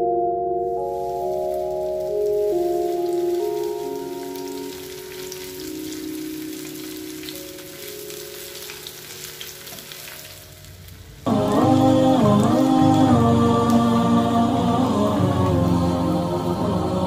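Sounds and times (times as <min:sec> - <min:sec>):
onion rings frying in oil: 0:00.9 - 0:16.8
small crackles and pops: 0:01.0 - 0:14.0.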